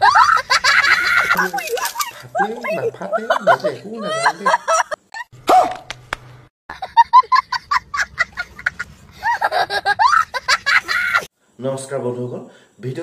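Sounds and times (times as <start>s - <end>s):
man chuckling: 0.0s - 5.0s
boy laughing hysterically: 0.0s - 5.2s, 6.7s - 11.3s.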